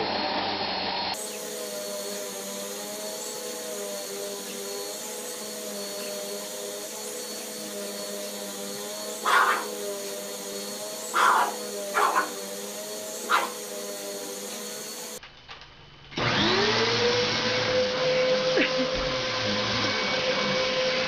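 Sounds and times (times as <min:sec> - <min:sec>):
vacuum cleaner motor humming: 0:00.0 - 0:15.2, 0:16.2 - 0:21.0
upright vacuum running: 0:00.0 - 0:15.3, 0:16.1 - 0:21.0
dog barking: 0:09.2 - 0:09.8, 0:11.1 - 0:12.4, 0:13.2 - 0:13.6.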